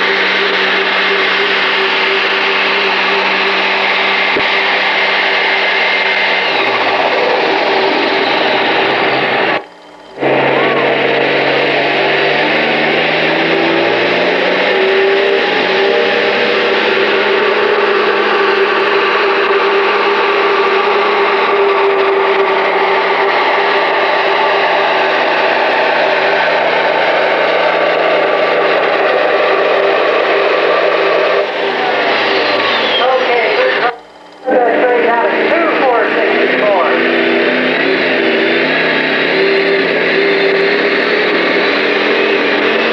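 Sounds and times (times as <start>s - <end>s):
tractor engine at full throttle: 0.0s - 42.9s.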